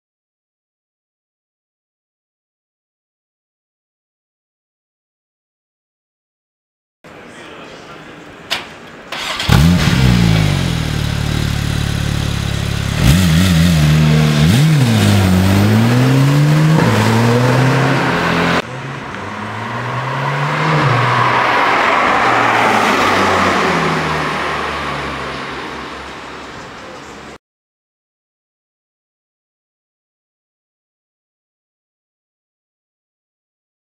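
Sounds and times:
car engine starting and idling: 9.1s - 19.7s
car passing: 9.1s - 27.4s
car engine revving and pulling away: 9.2s - 26.2s.

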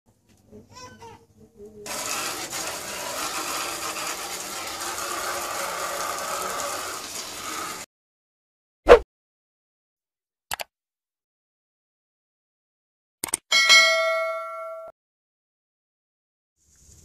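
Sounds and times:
water jet hissing and spattering: 1.9s - 7.9s.

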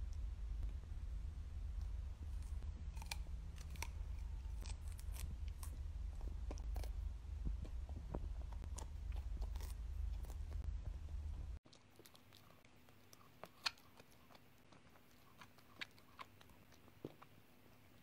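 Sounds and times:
low steady rumble: 0.0s - 11.6s
dog crunching vegetable stalk: 2.4s - 7.0s, 7.6s - 10.7s, 11.7s - 17.3s.

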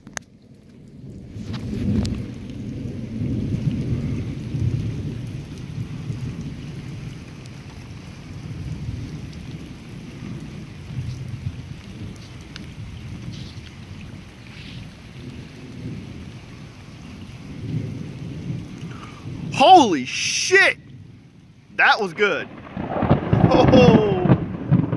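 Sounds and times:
steady rain falling: 0.0s - 24.9s
thunder rumbling: 1.0s - 24.9s.

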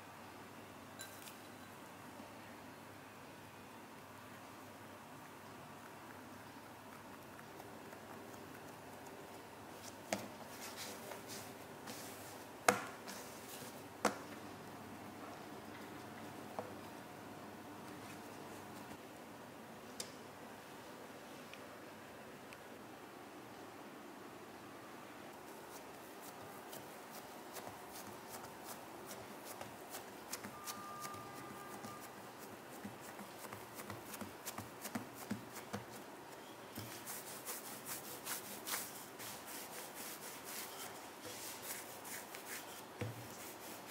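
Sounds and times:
hands handling bread dough: 9.8s - 14.4s, 25.5s - 43.9s.

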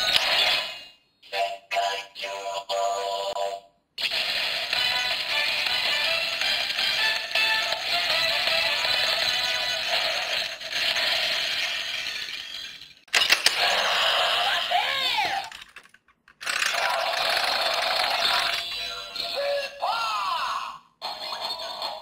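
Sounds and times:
toy electronic sound effects: 4.0s - 15.7s, 16.4s - 19.5s, 21.0s - 22.0s.

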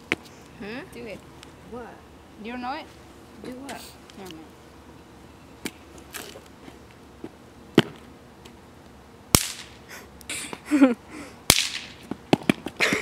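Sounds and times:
bang snaps popping: 9.4s - 9.8s, 11.5s - 12.6s.

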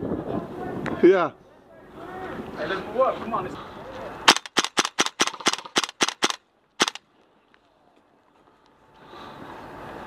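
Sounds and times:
airsoft rifle shots: 4.3s - 7.0s.

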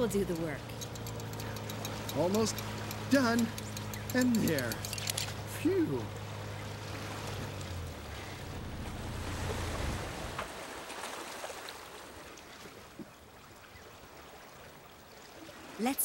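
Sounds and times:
low motor hum: 0.0s - 10.8s
cartoon water and wind: 5.4s - 16.0s.

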